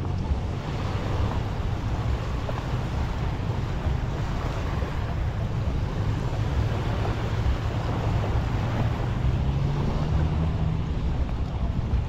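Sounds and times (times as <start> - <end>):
low motor hum: 0.0 - 12.0
surf washing on beach: 0.0 - 12.0
wind buffeting microphone: 0.0 - 12.0.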